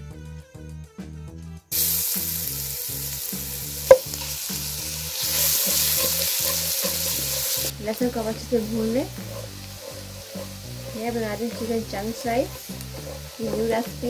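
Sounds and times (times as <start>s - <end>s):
garlic sizzling in hot oil: 1.7s - 14.0s
wooden spatula stirring: 3.9s - 14.0s.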